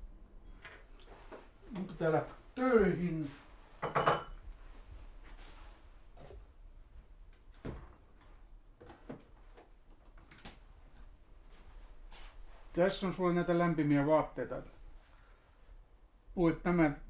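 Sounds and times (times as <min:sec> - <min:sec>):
faint knocks and soft thuds: 0:03.2 - 0:12.4.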